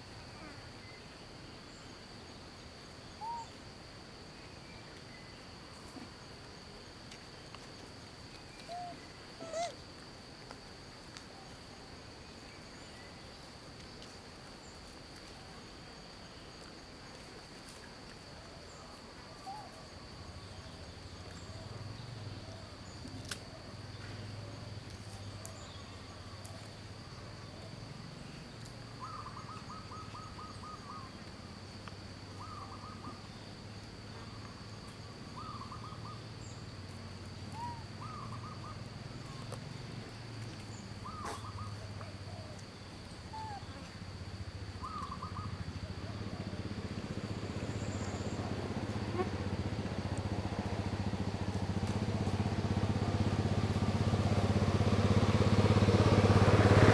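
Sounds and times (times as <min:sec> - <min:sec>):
high insect drone: 0:00.0 - 0:56.9
short bird calls: 0:03.2 - 0:03.6, 0:08.6 - 0:09.8, 0:41.0 - 0:42.5.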